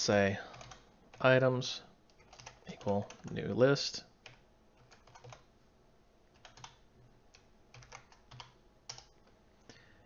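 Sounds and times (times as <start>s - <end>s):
keyboard typing: 0.4s - 1.3s, 2.1s - 3.5s, 4.2s - 5.5s, 6.3s - 9.4s.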